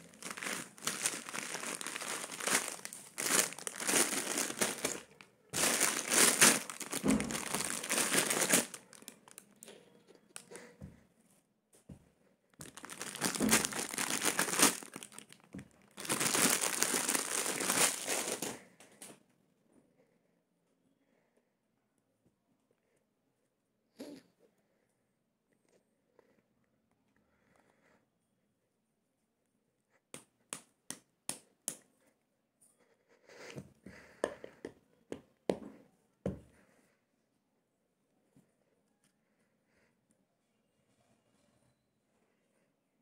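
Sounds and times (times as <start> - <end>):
plastic packaging crinkling: 0.0 - 9.6, 12.6 - 18.6.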